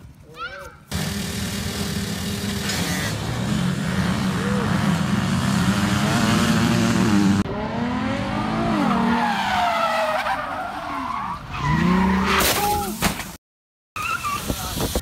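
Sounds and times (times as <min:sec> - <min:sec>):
motorbike engines running: 0:00.9 - 0:08.2
car tyres squealing: 0:08.7 - 0:12.6, 0:14.0 - 0:14.7.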